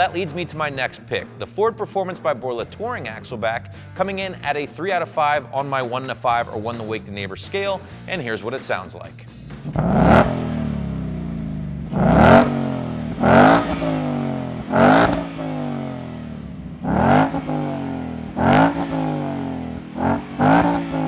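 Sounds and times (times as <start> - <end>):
car engine idling and revving: 9.4 - 21.0.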